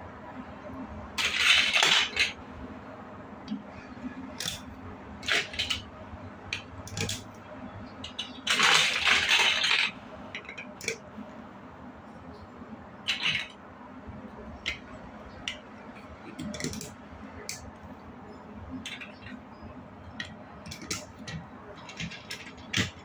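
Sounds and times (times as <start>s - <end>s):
plastic blocks rattling: 1.2s - 2.4s, 4.3s - 5.9s, 6.5s - 7.3s, 8.0s - 11.0s, 13.1s - 13.6s, 14.6s - 14.9s, 16.2s - 17.7s, 18.7s - 19.4s, 20.0s - 23.0s
plastic pieces clicking together: 1.2s - 2.4s, 4.4s - 5.9s, 6.5s - 7.3s, 8.0s - 11.1s, 13.1s - 13.6s, 14.6s - 14.9s, 16.2s - 17.7s, 18.8s - 19.4s, 20.1s - 23.0s.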